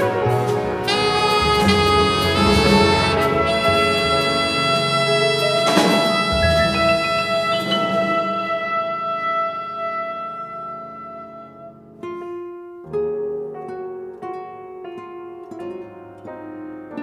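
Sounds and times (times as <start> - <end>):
instrumental background music: 0.0 - 12.3.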